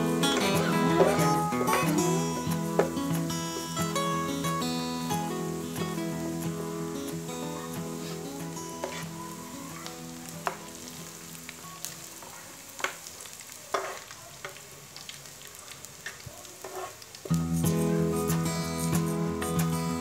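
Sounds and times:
acoustic guitar music: 0:00.0 - 0:12.1, 0:17.3 - 0:20.0
garlic sizzling in oil: 0:00.0 - 0:20.0.

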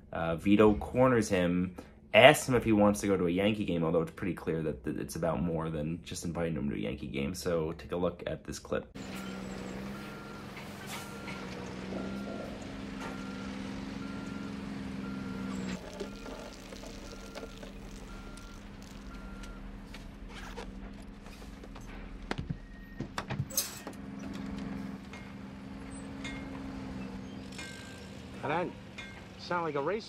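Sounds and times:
reversing alarm beeping: 0:09.0 - 0:20.3, 0:25.1 - 0:29.3
heavy vehicle engine running: 0:09.0 - 0:30.0.

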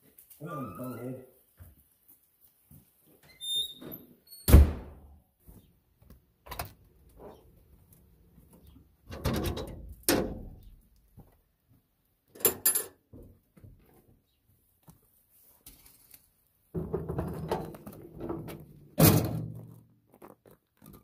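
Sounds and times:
door thumping shut: 0:04.5 - 0:05.0
metal clanks of furnace door: 0:09.1 - 0:10.6, 0:16.8 - 0:19.6.

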